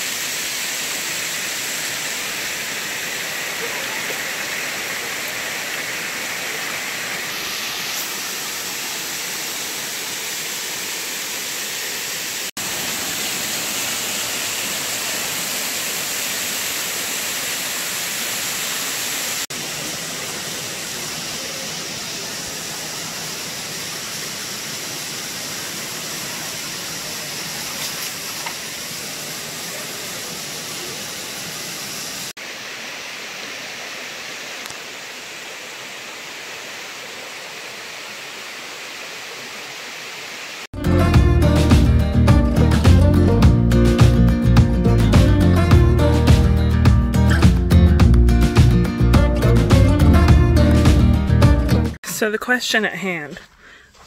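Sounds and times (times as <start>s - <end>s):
waterfall rushing and splashing: 0.0s - 40.7s.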